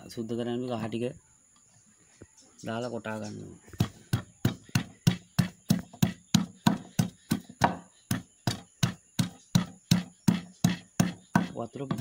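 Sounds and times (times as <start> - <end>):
pestle pounding in mortar: 3.8 - 12.0.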